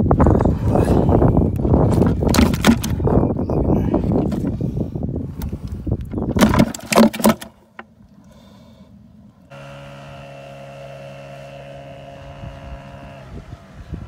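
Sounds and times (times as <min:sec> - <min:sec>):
knocks and rattles: 0:01.8 - 0:03.1, 0:06.2 - 0:07.5
motorboat engine droning: 0:08.3 - 0:14.0.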